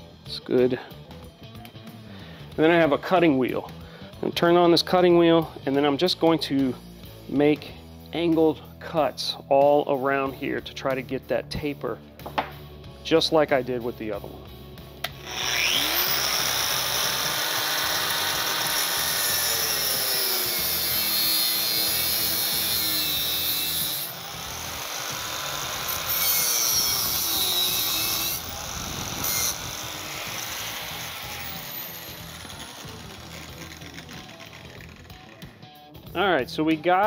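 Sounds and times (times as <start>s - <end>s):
spiral saw cutting steel: 15.1s - 35.6s.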